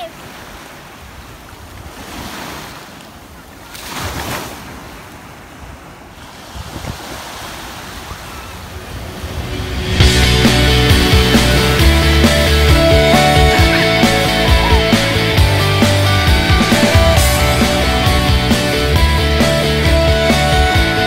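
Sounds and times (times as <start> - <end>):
small waves breaking on sand: 0.0 - 9.2
wind on the microphone: 6.2 - 10.0
music: 9.0 - 21.0.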